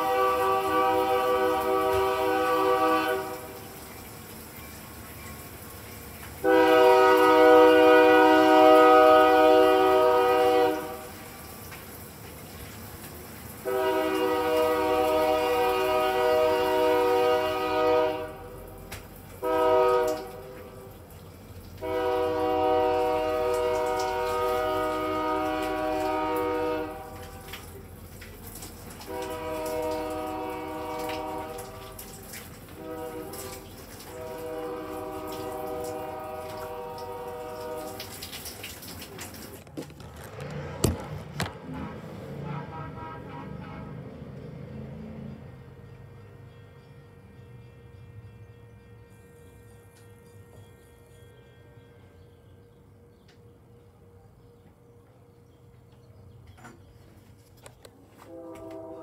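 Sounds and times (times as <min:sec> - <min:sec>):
locomotive air horn blasts: 0:00.0 - 0:03.8, 0:06.4 - 0:11.4, 0:13.6 - 0:21.0, 0:21.8 - 0:27.6, 0:29.0 - 0:38.1, 0:40.0 - 0:44.4, 0:45.8 - 0:52.7, 0:58.2 - 0:59.0.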